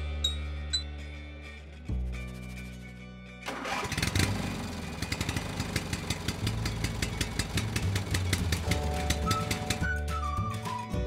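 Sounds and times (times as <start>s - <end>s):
music: 0.0s - 5.4s, 6.2s - 11.0s
machine rumbling with rapid clicks: 5.0s - 9.9s.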